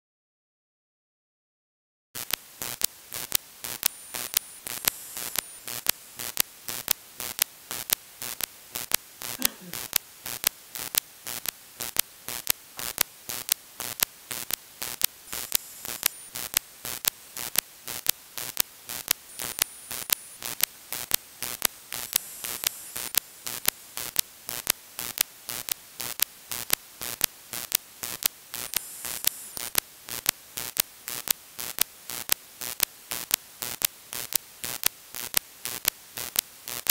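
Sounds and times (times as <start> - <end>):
radio static hiss: 2.2 - 36.9
sharp radio pops: 3.7 - 6.0, 15.3 - 16.6, 19.3 - 20.6, 21.5 - 23.6.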